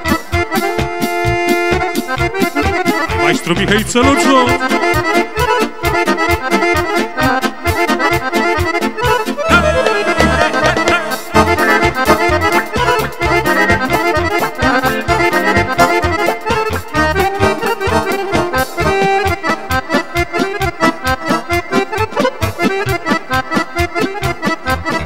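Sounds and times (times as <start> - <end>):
accordion playing fast melody: 0.0 - 25.0
drum beat: 9.5 - 11.8.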